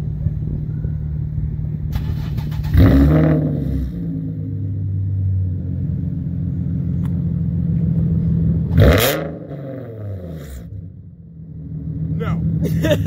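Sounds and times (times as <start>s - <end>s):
car engine idling: 3.8s - 13.0s.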